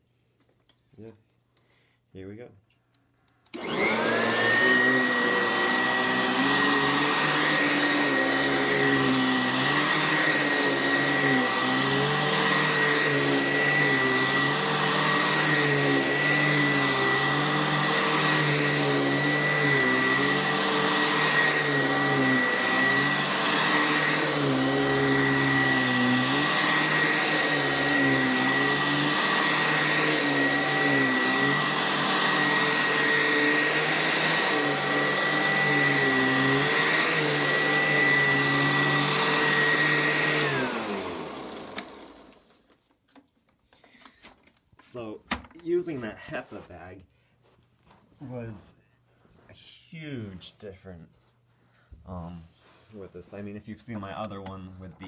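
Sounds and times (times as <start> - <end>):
upright vacuum running: 3.5 - 42.8.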